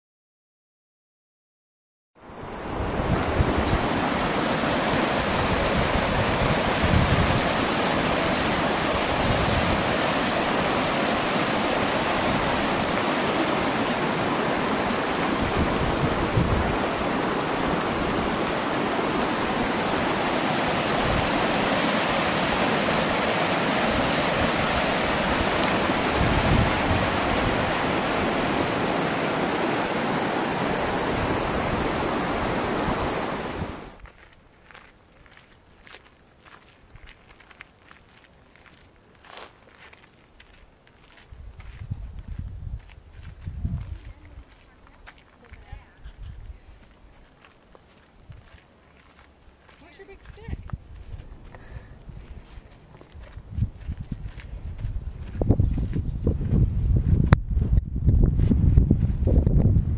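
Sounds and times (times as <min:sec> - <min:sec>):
stream rushing over rocks: 0:02.3 - 0:34.0.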